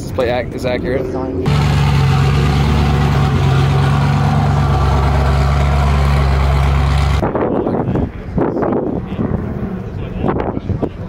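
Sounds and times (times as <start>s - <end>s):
car engine and exhaust running: 0.7s - 7.2s.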